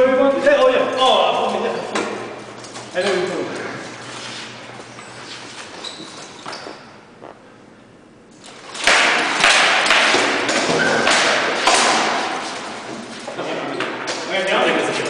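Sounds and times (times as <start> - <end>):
swords striking shields: 8.8 - 13.1.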